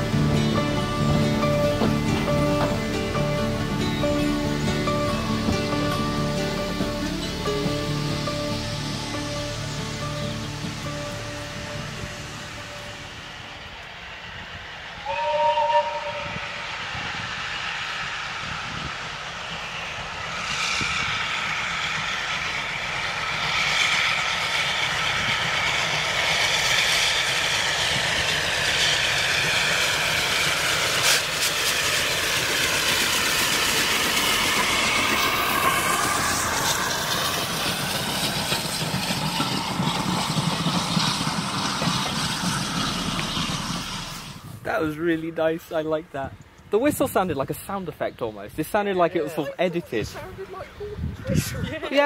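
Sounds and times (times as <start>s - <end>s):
high tones sinking in pitch: 0.0s - 16.9s
steam train passing: 0.0s - 52.0s.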